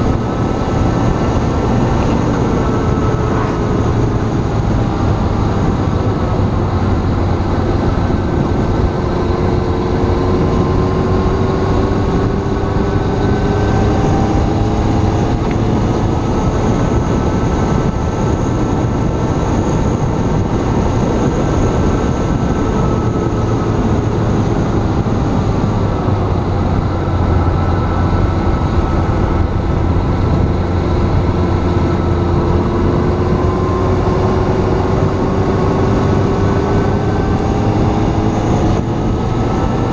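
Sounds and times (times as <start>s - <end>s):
vehicle engine: 0.0s - 39.9s.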